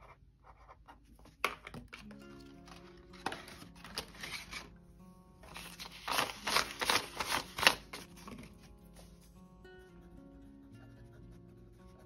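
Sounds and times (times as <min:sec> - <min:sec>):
soft background music: 0:00.0 - 0:12.0
banknotes rustling: 0:02.7 - 0:04.7, 0:05.4 - 0:08.7
crisp paper snap: 0:05.6 - 0:08.1.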